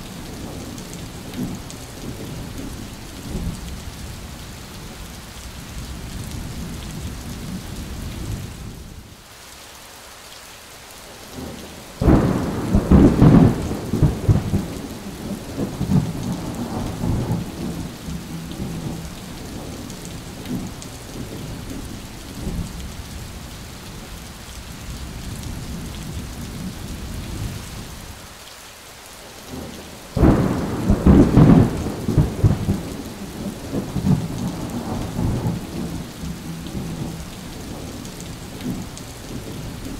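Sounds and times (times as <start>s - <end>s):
heavy rain: 0.0s - 39.9s
thunder cracking and rumbling: 12.0s - 22.9s, 29.5s - 39.9s.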